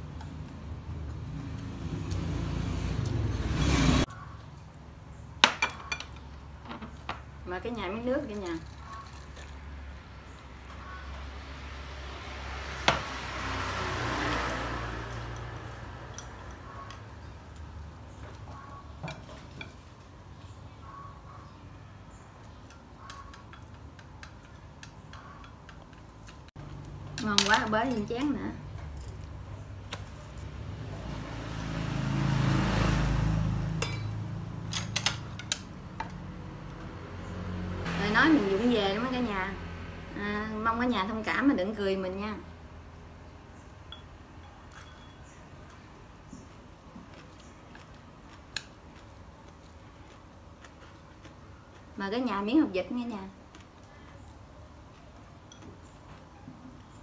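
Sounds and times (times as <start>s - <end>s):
road vehicle passing: 0.0s - 5.3s, 7.3s - 22.3s, 24.5s - 57.0s
tableware clinking: 33.8s - 34.2s, 43.9s - 45.2s.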